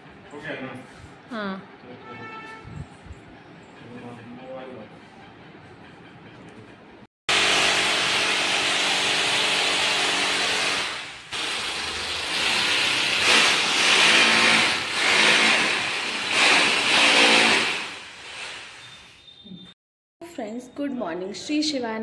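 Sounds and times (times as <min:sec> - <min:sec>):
electric drill boring into wall: 0:07.3 - 0:18.8.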